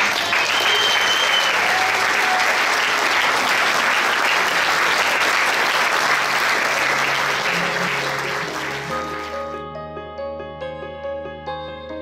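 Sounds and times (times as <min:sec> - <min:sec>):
large crowd applauding: 0:00.0 - 0:09.6.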